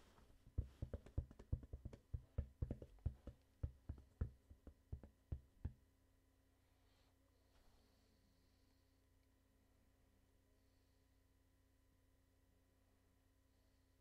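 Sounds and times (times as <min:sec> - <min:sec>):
light rapid taps: 0:00.0 - 0:05.8.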